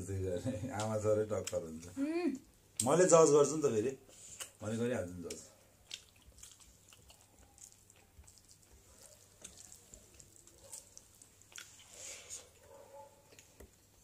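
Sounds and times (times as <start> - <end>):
wet chewing clicks: 0.7 - 1.9, 2.7 - 3.0, 4.1 - 12.0
fingers mixing rice on plate: 5.3 - 12.7.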